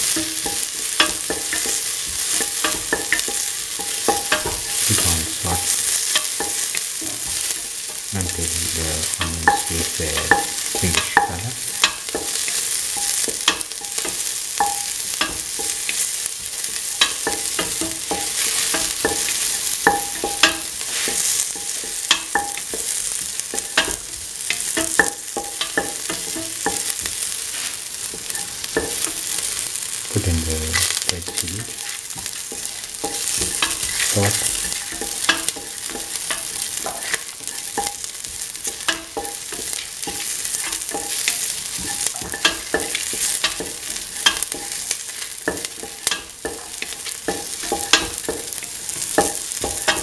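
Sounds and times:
onion sizzling in oil: 0:00.0 - 0:50.0.

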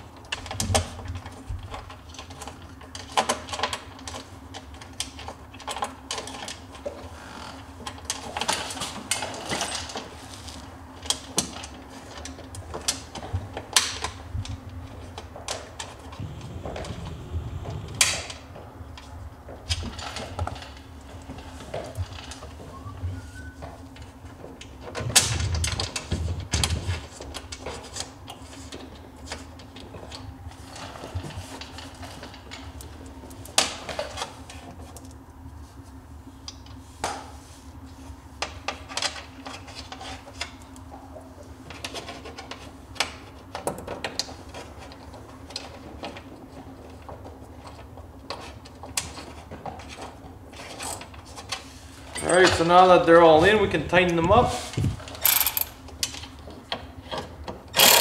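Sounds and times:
steady low hum: 0:00.0 - 0:25.0
metal bolts clicking and clattering: 0:55.2 - 0:55.8, 0:57.8 - 0:58.0.

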